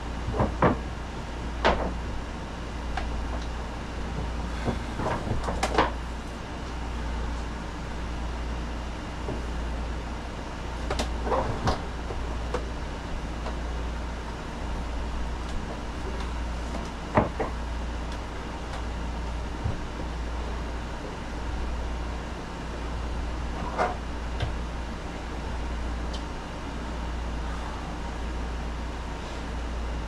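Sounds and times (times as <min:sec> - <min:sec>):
steady low hum: 0:00.0 - 0:30.0
plastic pump knocking and clattering: 0:00.3 - 0:00.8, 0:01.6 - 0:02.0.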